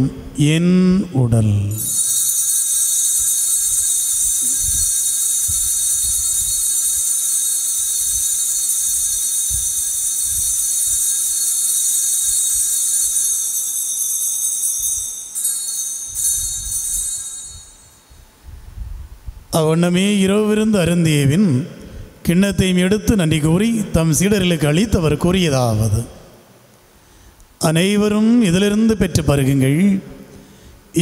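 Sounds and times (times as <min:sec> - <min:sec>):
altar bells ringing: 0:01.7 - 0:18.4.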